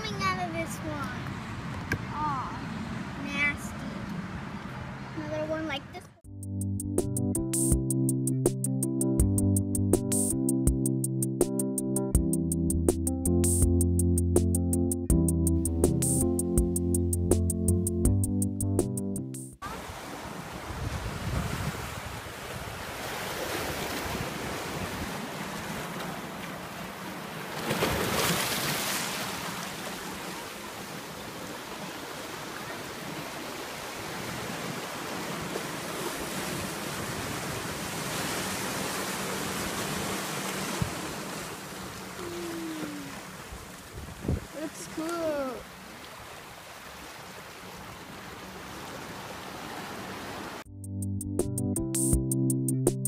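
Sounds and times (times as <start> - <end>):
small waves washing over rocks: 19.7 - 42.2.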